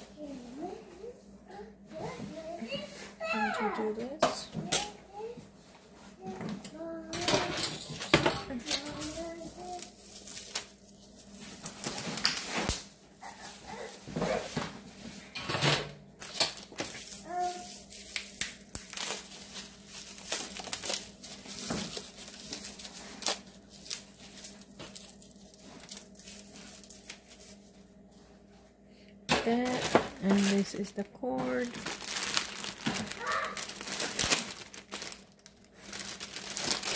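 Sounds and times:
plastic packaging crinkling: 0:07.2 - 0:14.5, 0:16.2 - 0:27.6, 0:29.4 - 0:36.9.

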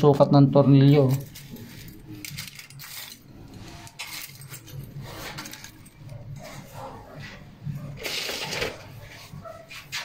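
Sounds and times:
metal screws clinking: 0:01.0 - 0:06.1.

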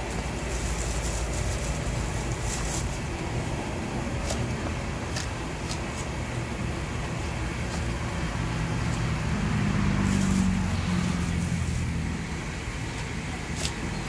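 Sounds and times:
vehicle engine passing: 0:06.5 - 0:12.9.

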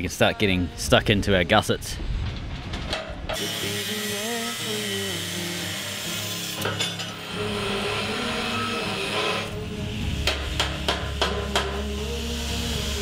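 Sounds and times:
angle grinder grinding steel: 0:03.4 - 0:13.0.

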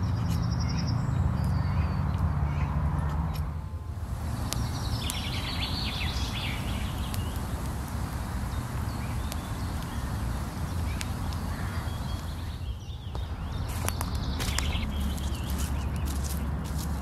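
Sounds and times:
birds chirping: 0:00.0 - 0:17.0
steady low rumble: 0:03.4 - 0:17.0
sharp clicks: 0:04.1 - 0:12.6.

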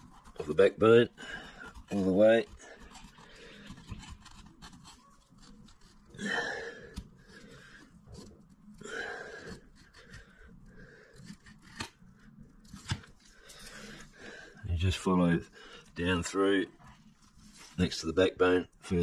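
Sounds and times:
knife cutting and scraping flesh: 0:09.3 - 0:13.2.

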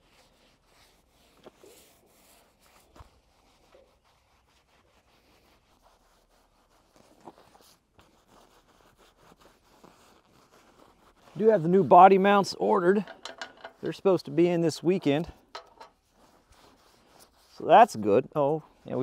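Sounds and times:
faint clicks and hand rubs: 0:12.9 - 0:14.0.

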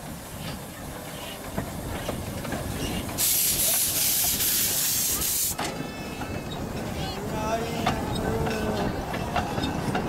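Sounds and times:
steam locomotive passing: 0:00.0 - 0:10.0
loud hiss of released steam: 0:02.8 - 0:06.2.

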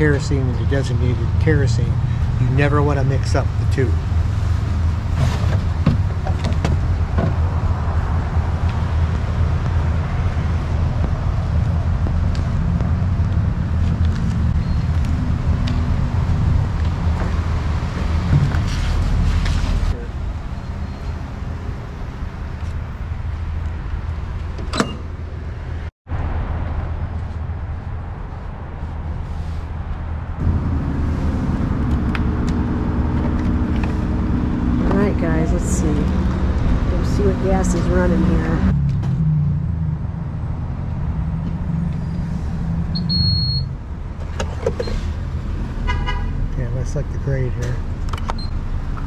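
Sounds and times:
short high-pitched beep: 0:43.0 - 0:43.7.

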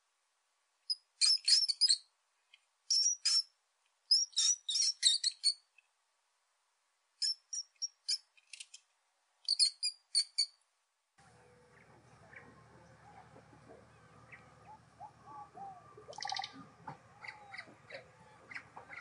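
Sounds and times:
high-pitched chirping calls: 0:00.9 - 0:02.1, 0:02.9 - 0:03.5, 0:04.1 - 0:05.6, 0:07.2 - 0:08.7, 0:09.4 - 0:10.6, 0:11.7 - 0:19.0.

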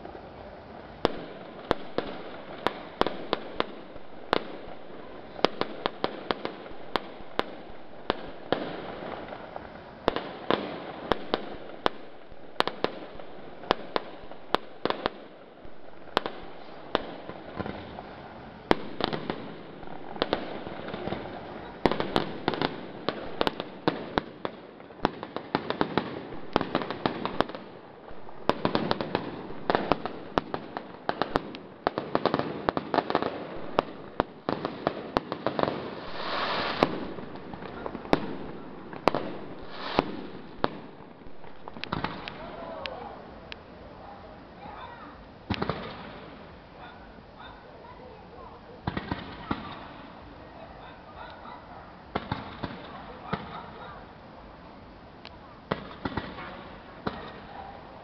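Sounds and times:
fireworks shells bursting: 0:35.9 - 0:42.4.

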